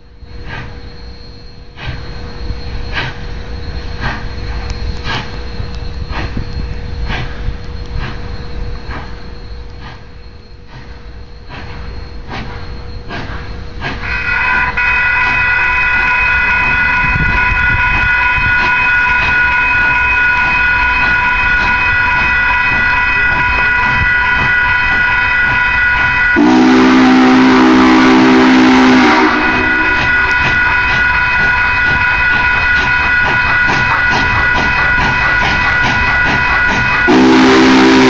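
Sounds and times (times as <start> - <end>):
railroad crossing bell ringing: 0.0 - 38.0
steam hissing: 0.0 - 38.0
steam whistle blast: 14.0 - 38.0.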